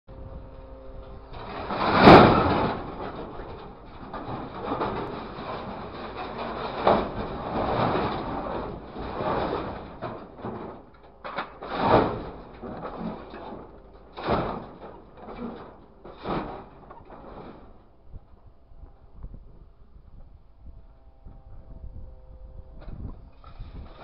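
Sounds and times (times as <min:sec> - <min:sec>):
scrap metal crashing into steel bin: 0:01.3 - 0:17.8.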